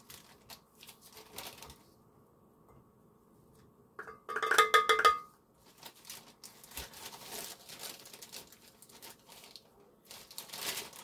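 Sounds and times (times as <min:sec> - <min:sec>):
plastic bag crinkling: 0:00.0 - 0:01.9, 0:05.6 - 0:11.0
cup clinking on glass bowl: 0:04.0 - 0:05.3.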